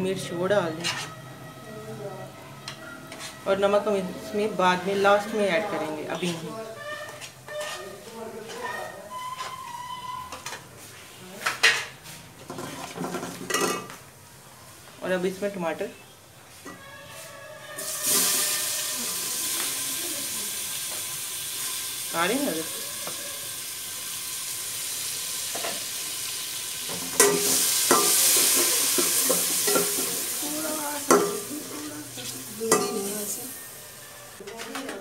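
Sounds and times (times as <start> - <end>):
tomatoes sizzling in hot oil: 17.7 - 34.4
metal spoon clacking on pot: 26.9 - 30.2, 31.1 - 31.5.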